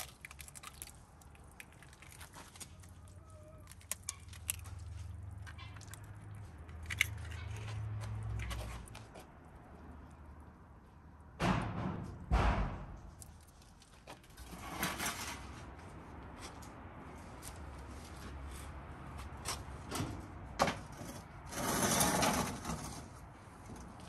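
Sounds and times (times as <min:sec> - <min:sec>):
metal tray scraping on brick: 0:14.4 - 0:15.6, 0:21.0 - 0:23.2.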